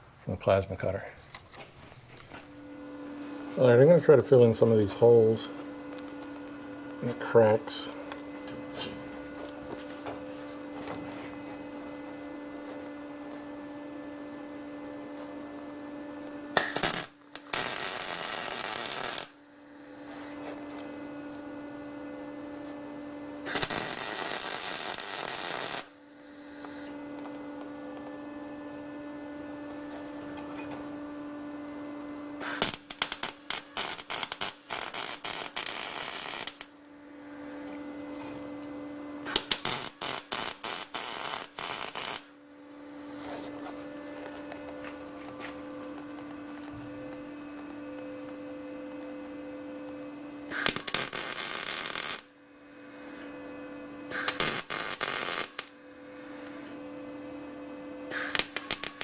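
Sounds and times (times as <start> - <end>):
steady electrical hum: 0.0 - 59.0
electric welder crackling: 2.2 - 11.9, 16.5 - 20.9, 23.4 - 28.1, 32.4 - 43.6, 44.5 - 53.3, 54.1 - 57.4, 58.1 - 59.0.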